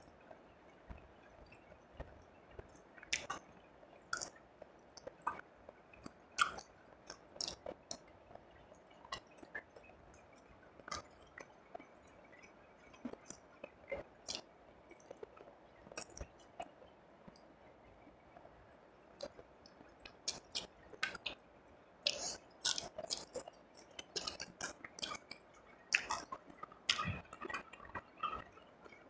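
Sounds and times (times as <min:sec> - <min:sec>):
chewing with wet mouth clicks: 0:02.0 - 0:03.4, 0:04.1 - 0:04.4, 0:05.0 - 0:05.4, 0:06.0 - 0:11.6, 0:12.3 - 0:16.7, 0:19.2 - 0:21.4, 0:22.0 - 0:29.0.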